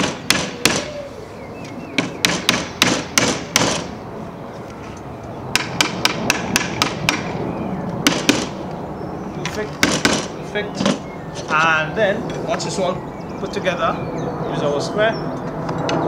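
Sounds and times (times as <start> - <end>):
hammer tapping wood: 5.6 - 7.3, 9.8 - 11.0.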